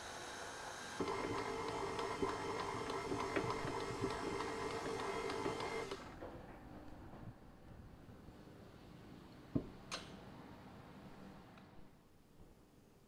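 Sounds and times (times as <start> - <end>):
stand mixer motor whine: 0.0 - 6.2.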